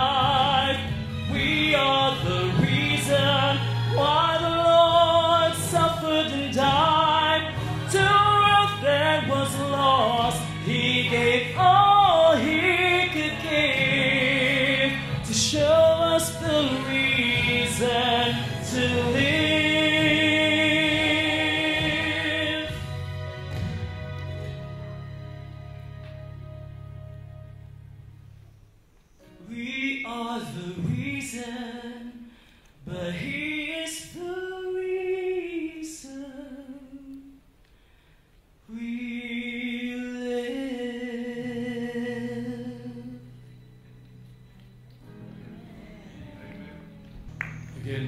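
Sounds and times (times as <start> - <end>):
man singing into microphone: 0.0 - 23.0, 29.4 - 37.4, 38.7 - 43.3, 47.7 - 48.0
instrumental accompaniment: 0.0 - 29.4, 43.3 - 48.0.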